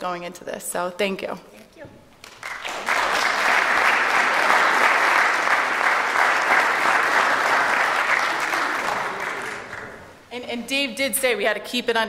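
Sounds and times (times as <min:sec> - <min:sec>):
audience applauding: 0:02.2 - 0:10.1.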